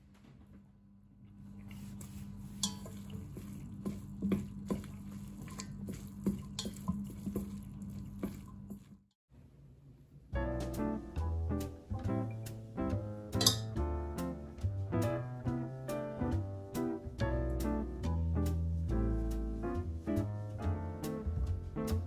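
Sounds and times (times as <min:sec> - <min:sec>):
wet noodle sounds: 0:01.3 - 0:09.1
chopsticks clicking on metal pot: 0:02.6 - 0:03.0, 0:13.4 - 0:13.8
music: 0:10.3 - 0:22.0.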